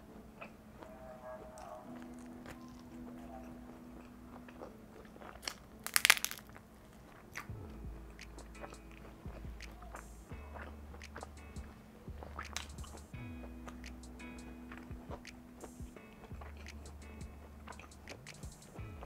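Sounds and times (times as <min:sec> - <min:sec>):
pizza crust crunching: 0:04.0 - 0:07.5
chewing clicks: 0:14.7 - 0:18.7.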